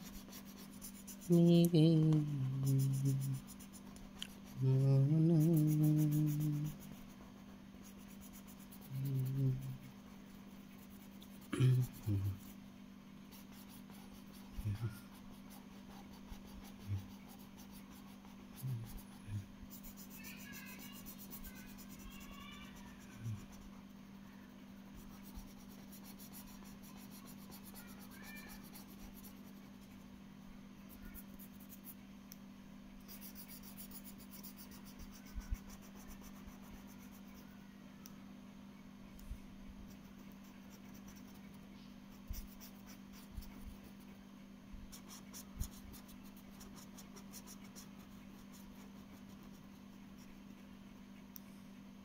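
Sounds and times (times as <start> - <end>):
marker scratching on paper: 0.0 - 1.4, 5.4 - 9.1, 13.3 - 22.4, 24.9 - 29.9, 33.0 - 37.4, 40.0 - 44.1, 44.9 - 50.4
low hum: 0.1 - 21.8.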